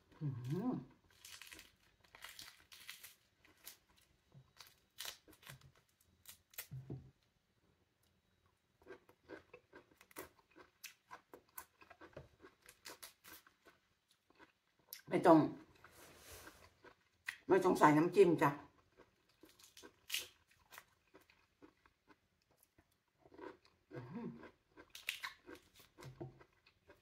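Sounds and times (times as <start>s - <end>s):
fruit membrane tearing: 0.5s - 7.0s.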